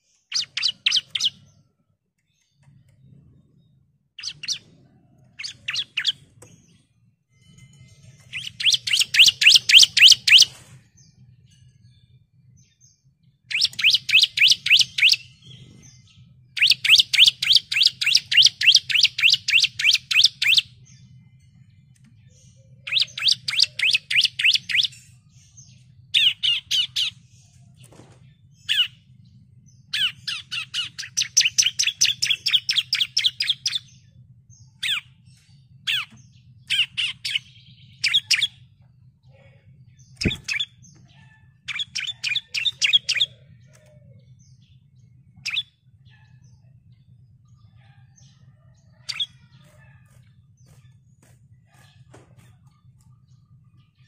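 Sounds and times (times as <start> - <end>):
bird rapid high chirping: 0.0 - 1.6, 4.2 - 6.8, 7.5 - 10.7, 13.4 - 21.1, 22.3 - 29.1, 29.8 - 39.1, 39.8 - 43.6, 44.2 - 47.0, 49.0 - 54.0.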